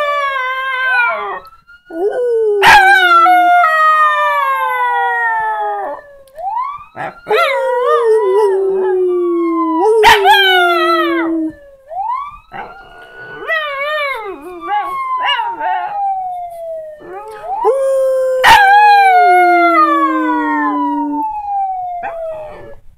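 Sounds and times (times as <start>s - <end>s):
dog howling: 0.0s - 6.0s, 7.0s - 11.6s, 17.0s - 21.3s
siren: 0.0s - 22.9s.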